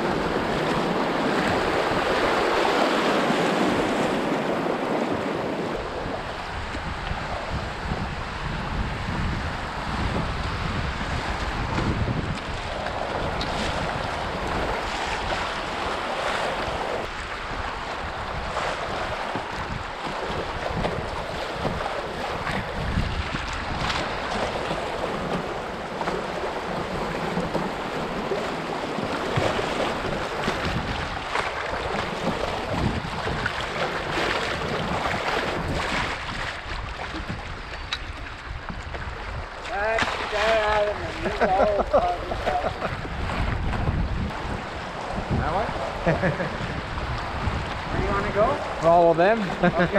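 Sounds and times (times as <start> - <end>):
river water rushing and splashing: 0.0 - 49.9
wind buffeting microphone: 0.0 - 49.9.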